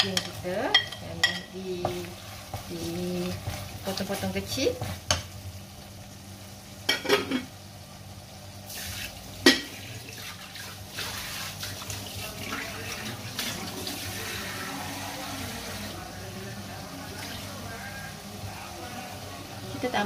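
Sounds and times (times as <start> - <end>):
wooden spatula knocking wok: 0.0 - 5.3
kitchen tap running: 8.7 - 15.9.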